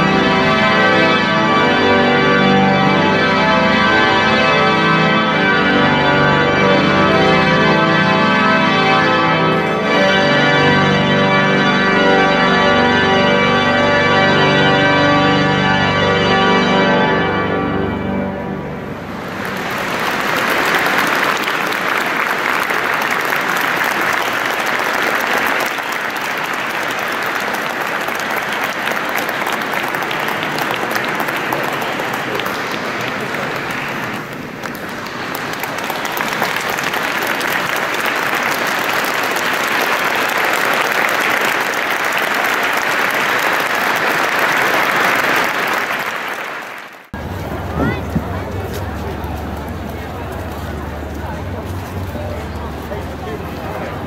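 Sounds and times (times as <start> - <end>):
audience applauding: 0.0 - 14.5, 19.0 - 54.0.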